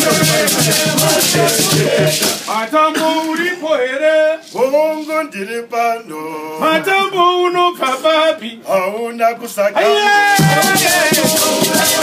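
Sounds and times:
men singing unaccompanied: 0.0s - 12.0s.

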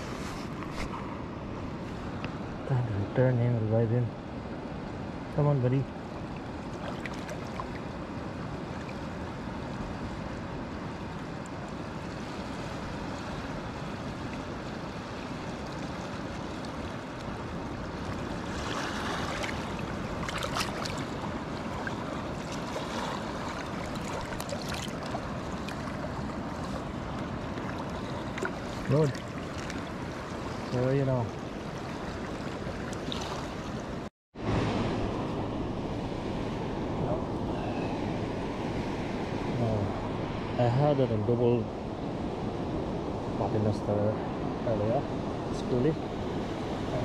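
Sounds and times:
sea surf washing: 0.0s - 47.0s
close splashing in water: 6.6s - 7.8s, 18.1s - 30.7s, 31.8s - 33.8s.

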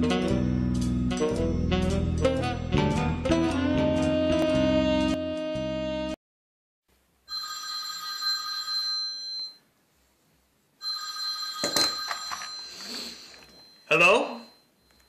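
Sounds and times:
desk telephone ringing: 7.3s - 9.6s, 10.8s - 15.0s.

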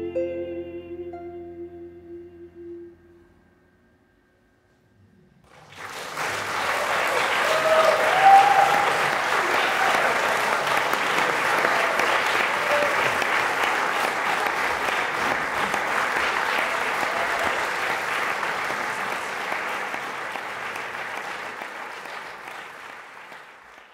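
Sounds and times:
audience applauding: 5.4s - 23.9s.

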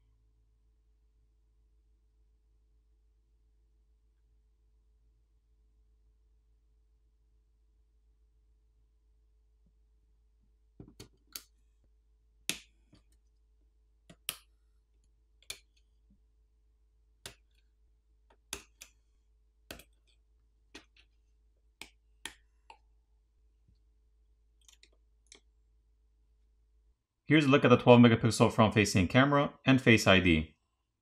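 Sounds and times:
pry tool clicking connectors: 11.0s - 11.5s.

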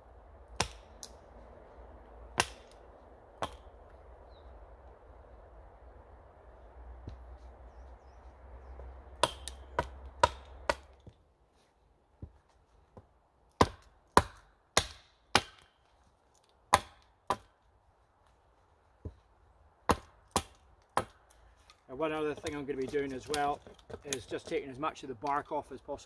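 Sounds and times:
hatchet chopping wooden pole: 0.5s - 1.2s, 2.3s - 2.8s, 3.4s - 3.8s, 9.2s - 11.2s, 13.0s - 15.8s, 16.7s - 17.6s, 19.8s - 21.3s, 22.1s - 24.8s.

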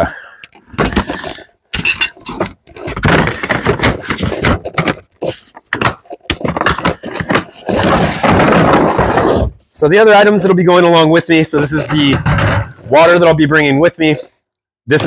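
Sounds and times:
plastic clatter and knocks: 0.5s - 9.6s, 11.8s - 13.1s
rustling: 0.6s - 13.4s.

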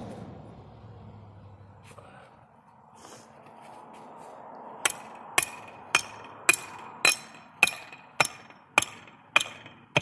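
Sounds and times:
hammer striking metal stake: 4.8s - 10.0s.

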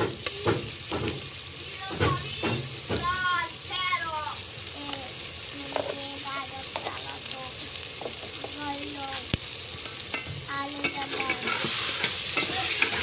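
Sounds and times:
food sizzling in oil: 0.0s - 13.0s
ladle stirring and scraping pot: 9.8s - 13.0s.

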